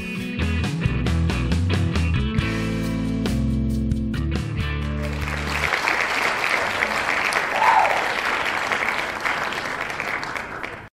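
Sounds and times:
guitar music: 0.0 - 5.5
crowd applauding: 4.8 - 11.0
crowd cheering: 5.0 - 11.0.

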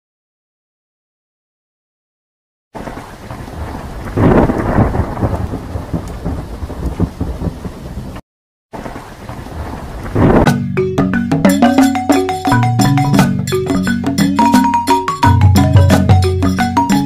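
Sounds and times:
thunder rumbling: 2.8 - 8.2, 8.8 - 10.6
heavy rain: 2.8 - 10.5.

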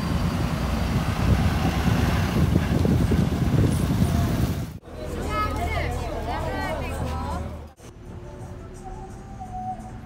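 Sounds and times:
bus engine running: 0.0 - 5.4
road traffic noise: 0.0 - 10.0.

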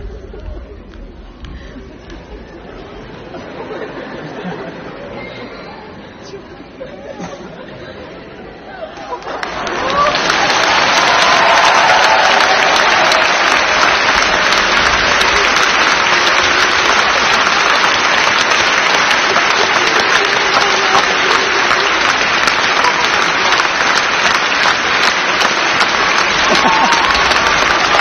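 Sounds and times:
large audience applauding: 9.0 - 28.0.

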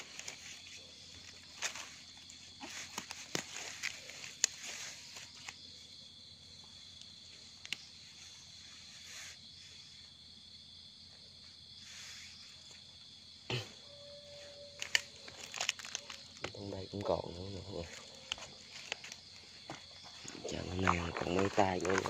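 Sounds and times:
crickets chirring: 0.0 - 22.0
hands rustling dry leaves: 20.3 - 22.0.

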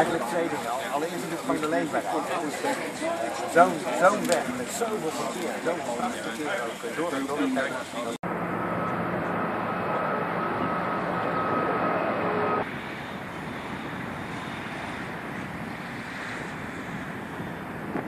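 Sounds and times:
jet engines roaring: 0.0 - 6.4, 7.7 - 18.0
faint high engine whine: 8.2 - 18.0.

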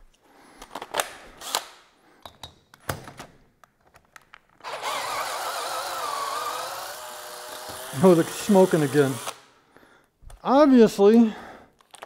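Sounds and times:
cordless drill whining: 4.6 - 9.4.

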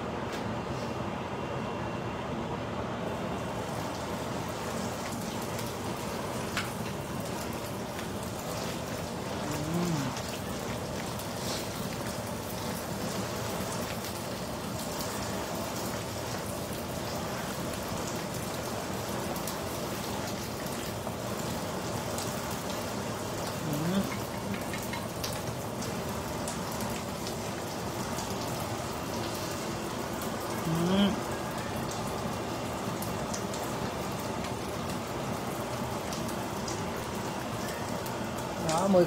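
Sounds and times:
fish sizzling in hot oil: 3.4 - 30.5.

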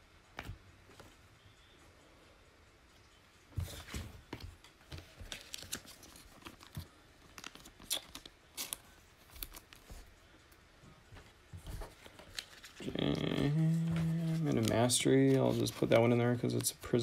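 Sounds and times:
trading cards clicking and rustling: 3.8 - 10.0, 11.7 - 17.0.

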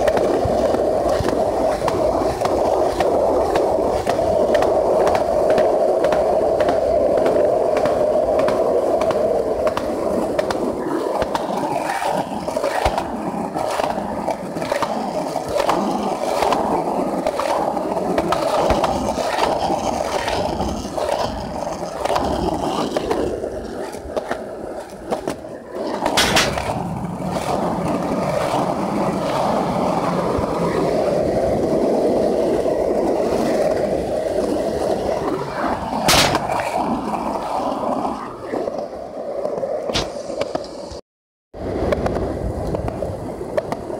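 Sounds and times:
skateboard wheels rolling on concrete: 0.0 - 43.9
sharp knock: 36.1 - 36.5.

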